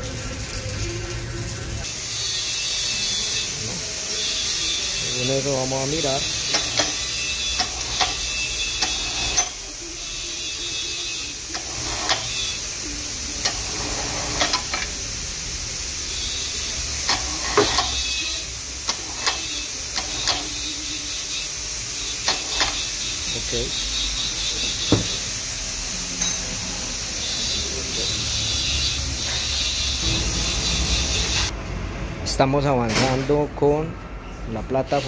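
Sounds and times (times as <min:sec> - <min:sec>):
steel cable winding on drum: 0:05.1 - 0:09.7, 0:10.7 - 0:12.7, 0:13.3 - 0:15.0, 0:16.1 - 0:20.8, 0:22.2 - 0:23.7
electric hoist motor hum: 0:06.0 - 0:09.6, 0:11.4 - 0:12.7, 0:13.4 - 0:15.0.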